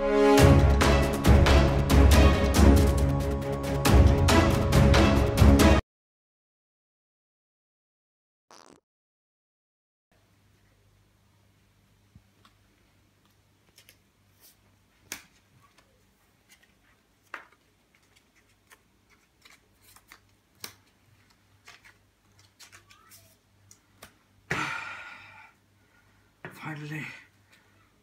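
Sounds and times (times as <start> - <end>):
plastic card sleeves rustling: 13.6 - 24.1.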